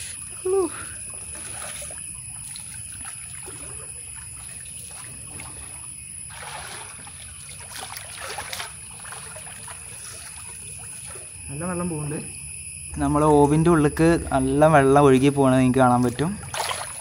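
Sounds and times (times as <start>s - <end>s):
water splashing and sloshing: 0.0s - 17.0s.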